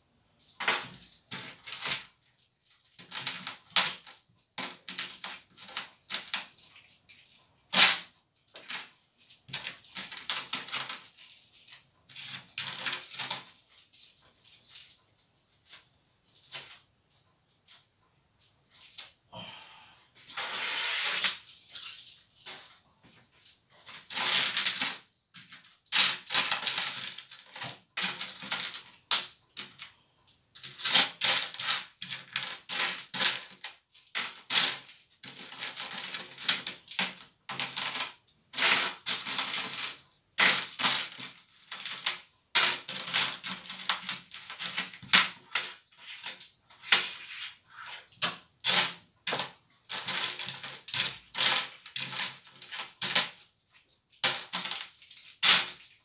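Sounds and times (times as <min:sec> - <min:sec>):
coins rattling in plastic bowl: 0:00.5 - 0:13.8, 0:23.8 - 0:30.0, 0:30.6 - 0:47.4, 0:48.1 - 0:56.0.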